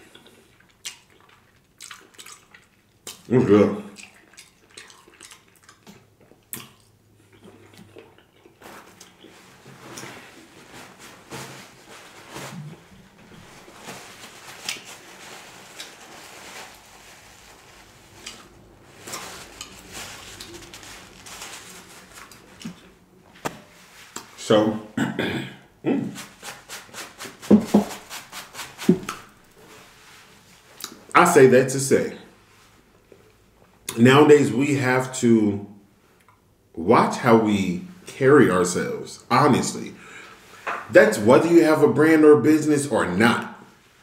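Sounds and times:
chewing and wet mouth sounds: 0.0s - 10.1s, 18.0s - 20.7s, 22.2s - 23.1s
small mouth clicks: 4.0s - 9.3s
paper towel rustling: 8.6s - 24.5s, 26.1s - 32.9s.

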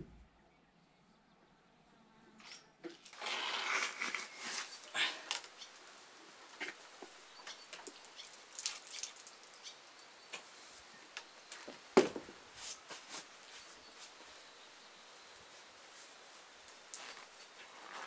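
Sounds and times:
boots scraping and rustling: 3.0s - 5.2s, 11.6s - 14.3s, 16.0s - 18.0s
boot thud on wooden deck: 12.0s - 12.4s.

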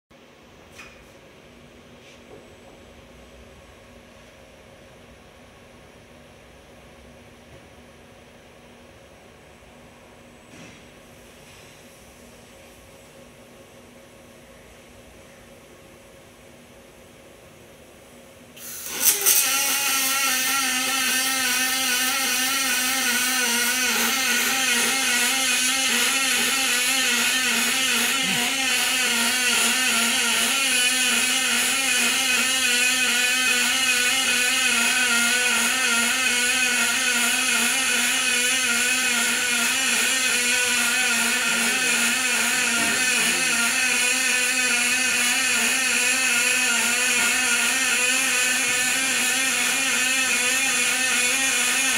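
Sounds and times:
welding arc buzzing hiss: 18.6s - 51.9s
welding arc crack: 18.6s - 51.9s.

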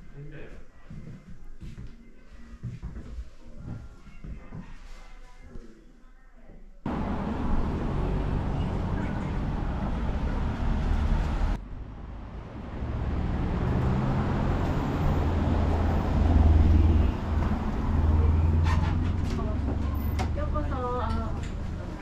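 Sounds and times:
low engine hum: 6.9s - 22.0s
street traffic: 6.9s - 22.0s.

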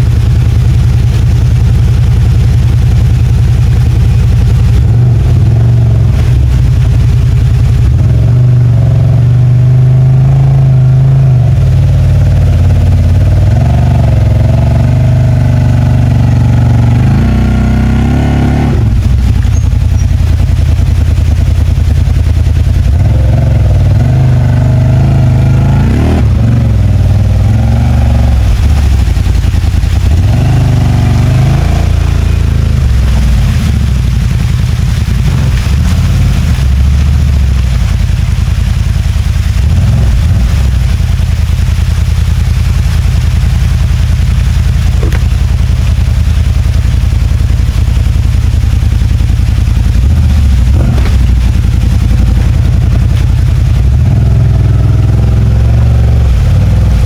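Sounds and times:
engine revving under load: 13.4s - 19.6s, 22.9s - 37.7s, 50.0s - 52.7s, 53.8s - 57.0s.

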